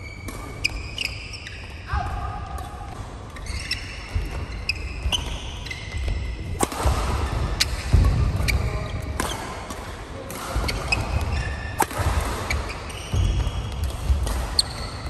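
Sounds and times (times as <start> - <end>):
shoes squeaking on court: 0.0 - 1.9, 2.6 - 9.5, 10.5 - 15.0
rackets striking shuttlecock: 0.2 - 1.8, 5.1 - 15.0.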